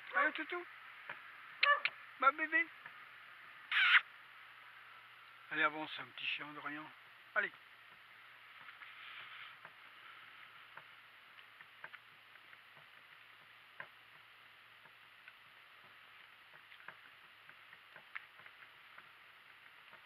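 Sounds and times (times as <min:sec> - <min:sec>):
low steady hum: 0:00.0 - 0:20.0
donkey hooves: 0:07.5 - 0:20.0
cart creaking and clicking: 0:10.7 - 0:20.0.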